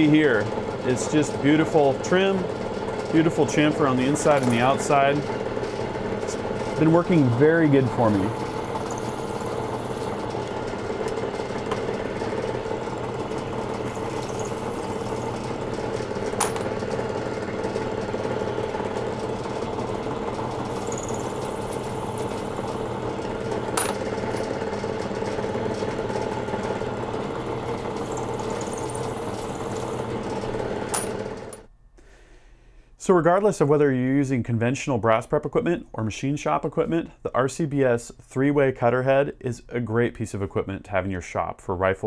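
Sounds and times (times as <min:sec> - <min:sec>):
milling machine spindle running: 0:00.0 - 0:31.6.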